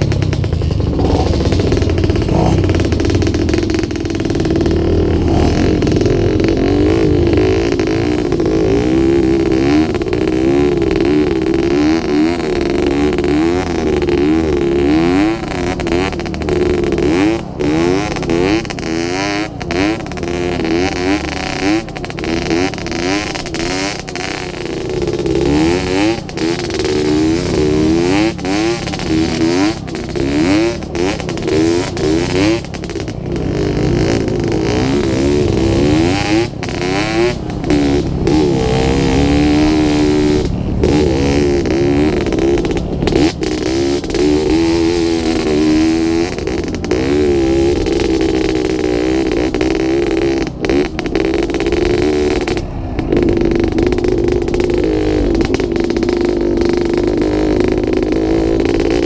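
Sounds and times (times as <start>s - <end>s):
constant rushing noise: 0.0s - 59.0s
dirt bike engine revving: 0.0s - 59.0s.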